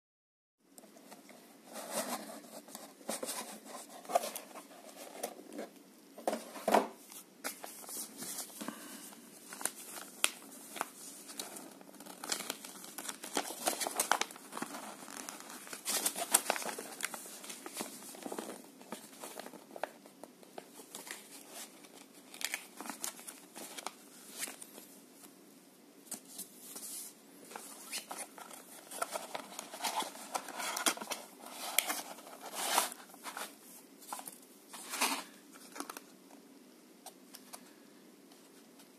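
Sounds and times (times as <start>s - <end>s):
paper leaflet rustling: 6.3s - 19.9s
cardboard box and plastic crinkling: 9.5s - 20.0s.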